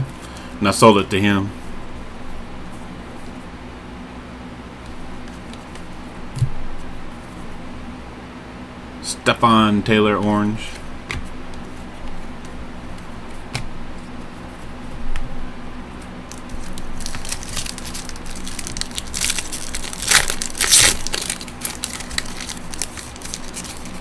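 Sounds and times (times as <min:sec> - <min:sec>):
cards being handled: 0:04.8 - 0:07.5, 0:10.6 - 0:15.3, 0:15.9 - 0:24.0
wrapper crinkling: 0:16.2 - 0:24.0.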